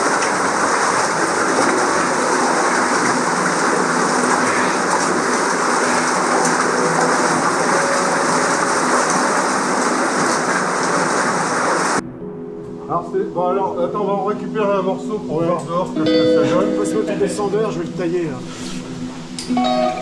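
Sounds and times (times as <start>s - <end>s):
underground stream rushing: 0.0s - 12.0s.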